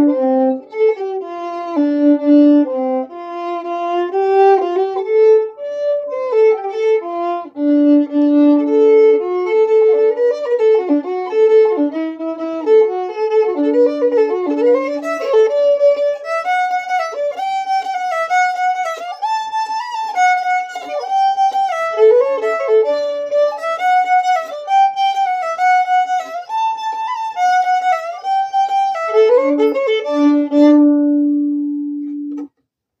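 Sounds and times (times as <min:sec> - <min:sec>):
fiddle drone string: 0:00.0 - 0:32.5
solo fiddle folk melody: 0:00.0 - 0:32.6.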